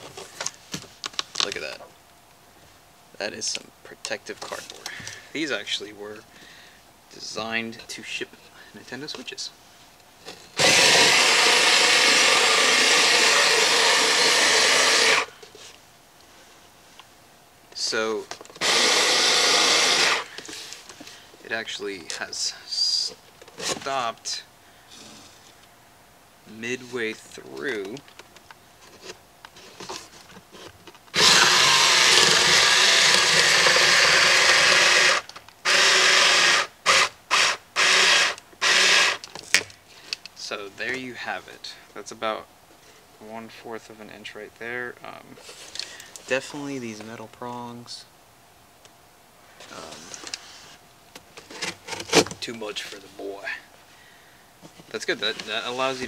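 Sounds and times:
blade cutting cardboard: 10.6s - 15.3s, 18.6s - 20.4s, 31.2s - 39.2s
rotary cutter motor running: 10.6s - 15.3s, 18.6s - 20.3s, 31.2s - 39.2s.

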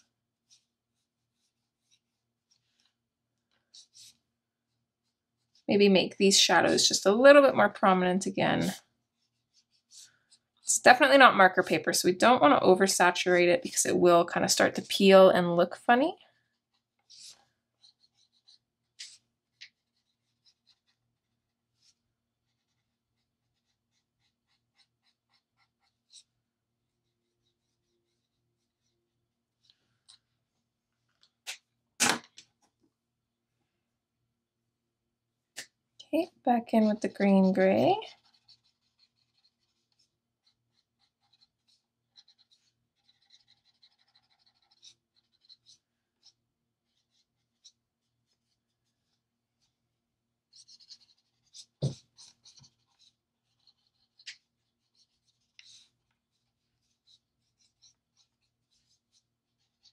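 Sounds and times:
marker scratching on paper: 0.0s - 4.2s, 5.0s - 15.5s, 16.7s - 26.4s, 27.0s - 29.0s, 36.8s - 49.7s, 50.5s - 59.9s.

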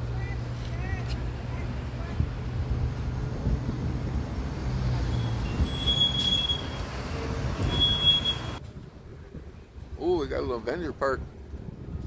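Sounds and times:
street traffic rumble: 0.0s - 12.0s
brief high squeals: 4.4s - 8.6s.

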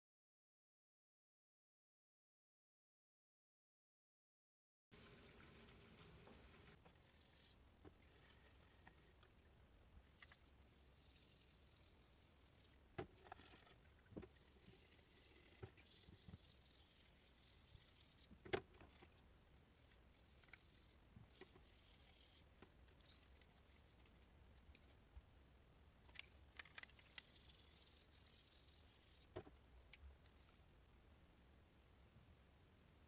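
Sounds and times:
brush scrubbing metal: 6.3s - 9.2s, 10.1s - 25.0s, 26.2s - 29.4s.

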